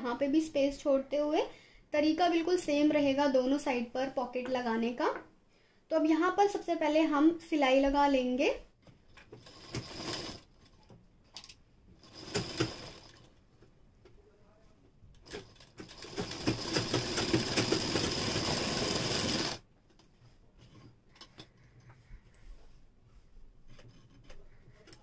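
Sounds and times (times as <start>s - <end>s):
sewing machine stitching: 9.1s - 13.3s, 15.1s - 19.6s.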